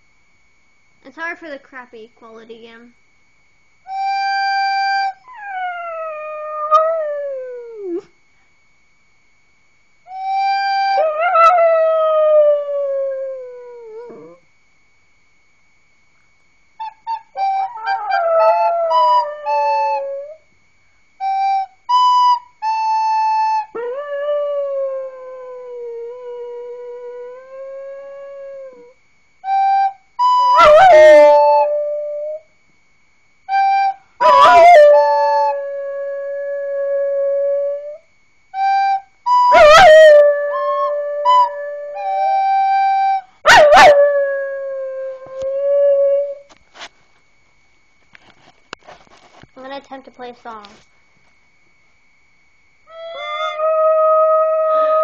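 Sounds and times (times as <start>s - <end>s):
dog howling: 10.4s - 14.4s, 16.8s - 20.4s, 34.2s - 37.9s, 39.5s - 46.4s, 52.9s - 55.0s
recorder notes: 15.4s - 20.5s, 21.2s - 32.4s, 33.4s - 46.9s, 47.9s - 55.0s.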